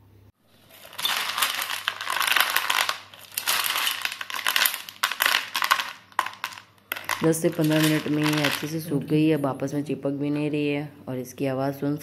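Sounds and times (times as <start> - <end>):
nuts clattering on steel plate: 0.6 - 8.8.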